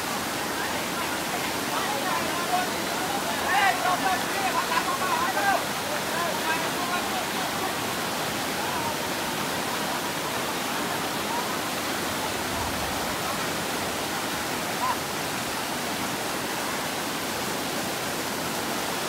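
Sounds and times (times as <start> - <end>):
flowing water rushing: 0.0 - 19.0.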